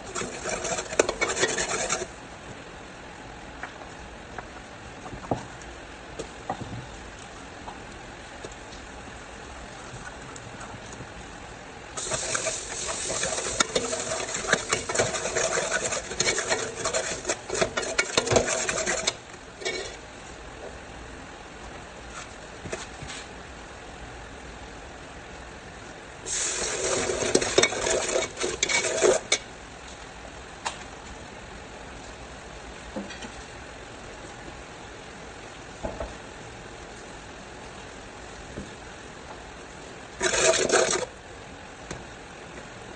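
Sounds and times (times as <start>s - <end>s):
metal ladle scraping a pot: 0.0s - 2.1s, 12.0s - 20.0s, 26.3s - 29.4s, 40.2s - 41.1s
food sizzling in oil: 12.0s - 19.9s, 26.3s - 29.4s.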